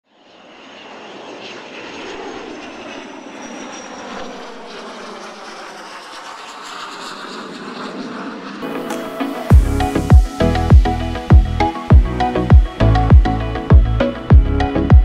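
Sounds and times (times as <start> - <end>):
engine drone: 0.2 - 15.0
music: 8.6 - 15.0
rushing noise: 8.6 - 15.0.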